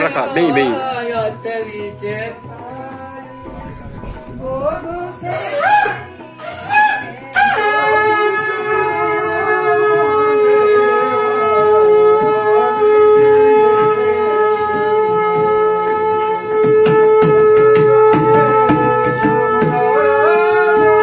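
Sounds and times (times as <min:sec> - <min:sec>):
wind instrument drone and melody: 0:02.4 - 0:21.0
sharp drum strokes: 0:12.2 - 0:20.1.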